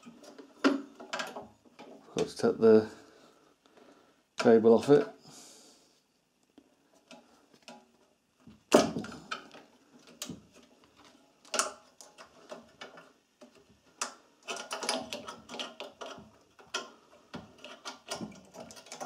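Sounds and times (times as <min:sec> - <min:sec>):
metal clicks and knocks: 0:11.4 - 0:19.0.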